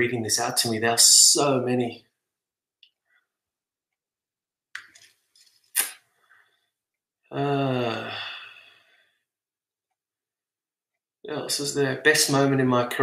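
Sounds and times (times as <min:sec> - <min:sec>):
man saying umm: 0:07.3 - 0:08.4.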